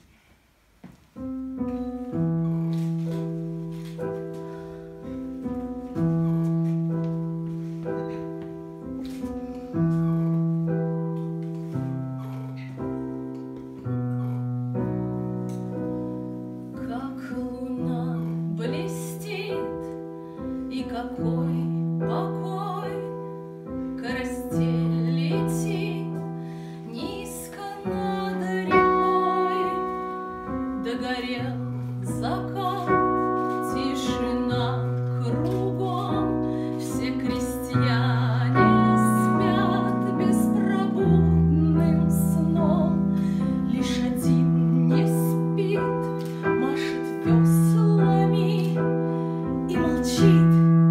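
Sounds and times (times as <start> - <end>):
piano playing chords: 1.1 - 50.9
woman singing: 16.7 - 50.9.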